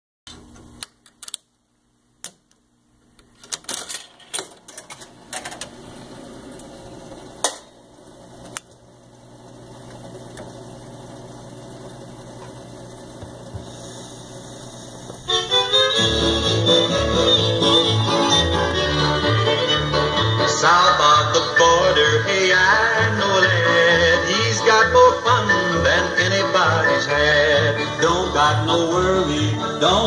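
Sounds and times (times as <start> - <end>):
jukebox coin clicks: 3.4 - 5.6
steady motor hum: 5.2 - 20.3.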